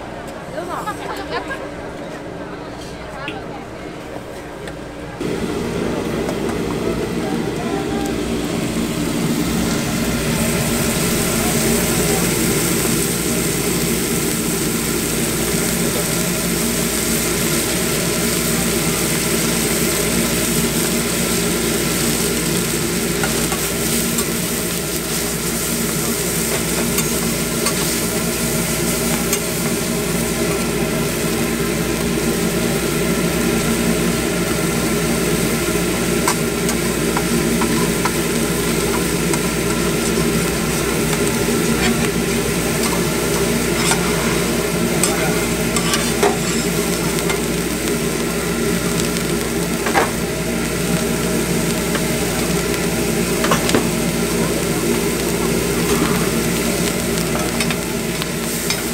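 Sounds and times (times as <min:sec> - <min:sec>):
steady mechanical hum: 0:00.0 - 0:58.9
meat and eggs sizzling on griddle: 0:07.7 - 0:58.9
metal spatula scraping and tapping: 0:42.8 - 0:44.1, 0:45.8 - 0:46.7.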